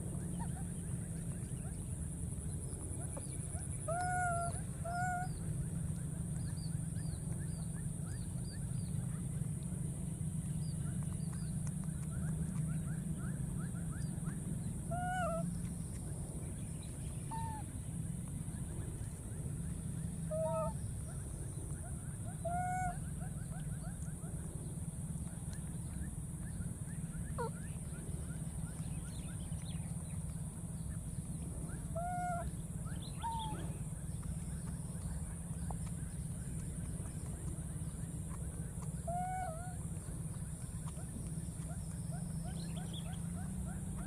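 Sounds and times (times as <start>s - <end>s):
low background noise: 0.0s - 44.0s.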